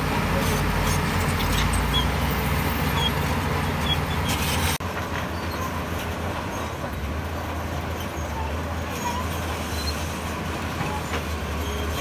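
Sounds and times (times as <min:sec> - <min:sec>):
heavy diesel engine running: 0:00.0 - 0:09.6.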